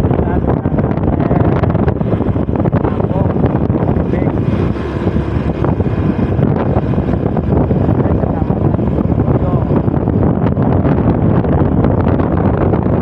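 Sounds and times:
vehicle running noise: 0:00.0 - 0:13.0
wind buffeting microphone: 0:00.0 - 0:13.0.

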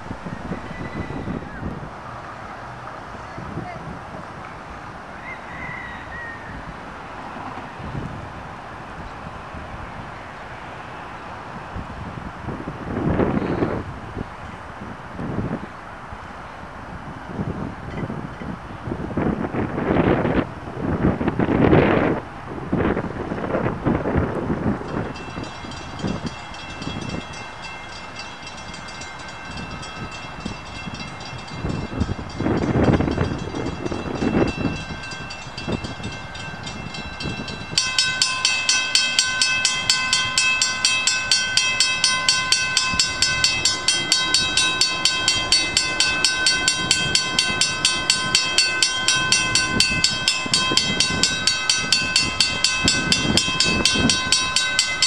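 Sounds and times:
railroad crossing warning bell: 0:24.6 - 0:55.0.

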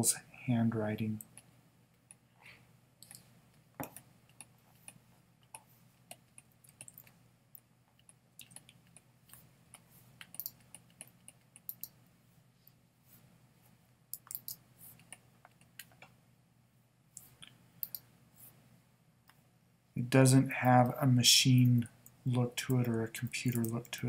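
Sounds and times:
faint low hum: 0:00.0 - 0:24.0.

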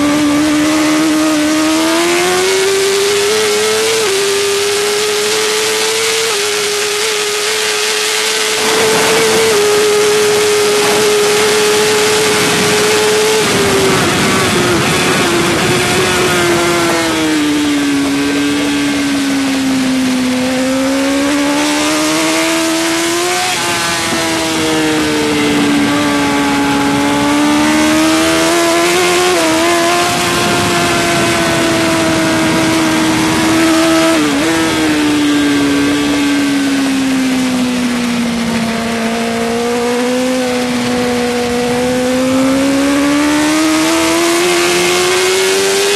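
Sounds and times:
motorcycle engine revving high: 0:00.0 - 0:45.9
wind rushing: 0:08.2 - 0:39.6.

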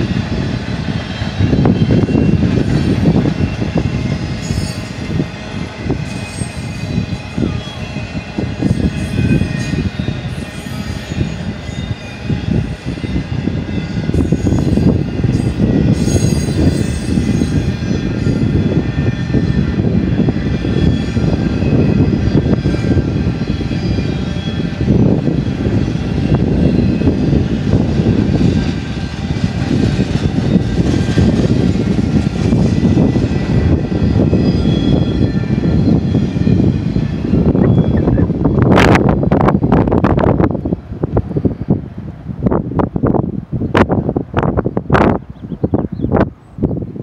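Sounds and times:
freight train cars rolling past: 0:00.0 - 0:47.0
faint high squealing: 0:06.1 - 0:19.6, 0:33.9 - 0:38.3.

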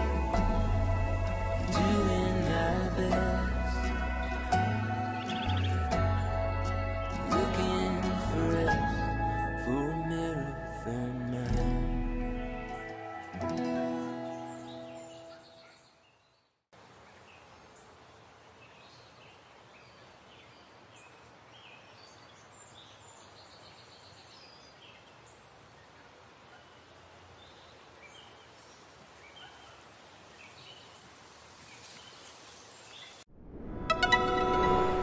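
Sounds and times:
music: 0:00.0 - 0:15.2, 0:33.7 - 0:35.0
steady hiss: 0:28.0 - 0:33.2.

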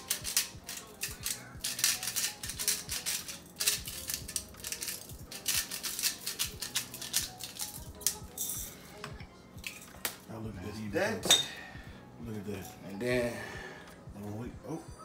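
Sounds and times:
pepper grinder crunching peppercorns: 0:00.0 - 0:08.5.

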